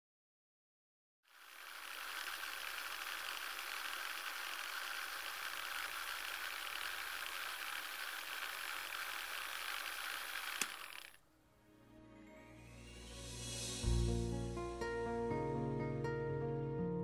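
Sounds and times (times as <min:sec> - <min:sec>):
sharp click: 0:10.5 - 0:11.0.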